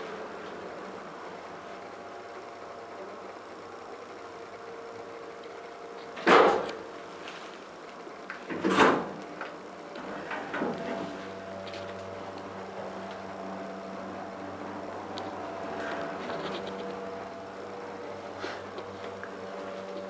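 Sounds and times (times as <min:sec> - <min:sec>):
steady low hum: 0:00.0 - 0:20.0
elevator doors closing: 0:08.4 - 0:17.5.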